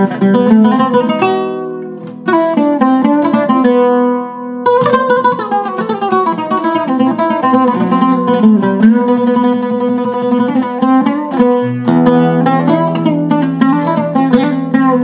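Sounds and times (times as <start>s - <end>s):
oud plucked melody: 0.0s - 15.0s.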